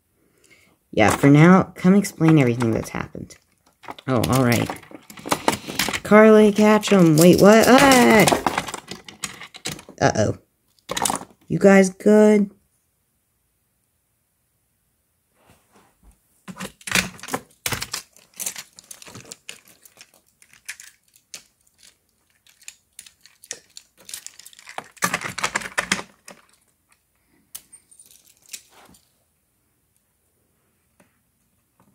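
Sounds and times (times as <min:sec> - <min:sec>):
plastic toy pieces clattering: 0:01.0 - 0:11.4, 0:16.5 - 0:27.0, 0:27.6 - 0:29.1.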